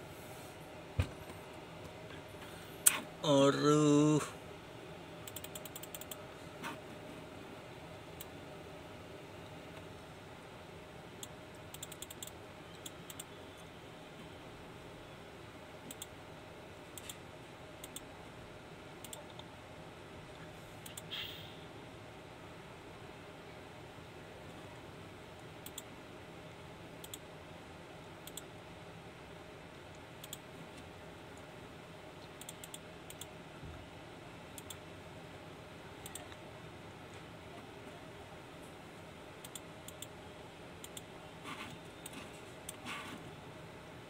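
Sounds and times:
faint steady hum: 0:00.0 - 0:44.0
computer clicks: 0:05.2 - 0:06.2, 0:11.2 - 0:13.3, 0:15.8 - 0:16.2, 0:16.9 - 0:17.2, 0:17.8 - 0:18.1, 0:19.0 - 0:19.5, 0:20.8 - 0:21.3, 0:25.6 - 0:25.9, 0:27.0 - 0:27.2, 0:28.0 - 0:28.5, 0:29.9 - 0:30.4, 0:32.2 - 0:33.4, 0:34.5 - 0:34.8, 0:36.0 - 0:36.4, 0:39.4 - 0:40.2, 0:40.8 - 0:41.1.

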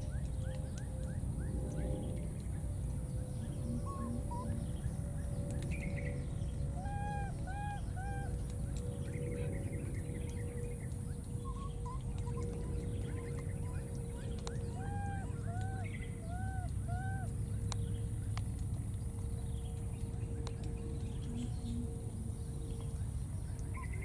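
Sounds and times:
small birds chirping: 0:00.0 - 0:24.0
steady low rumble: 0:00.0 - 0:24.0
clear arched bird calls: 0:03.2 - 0:18.0.

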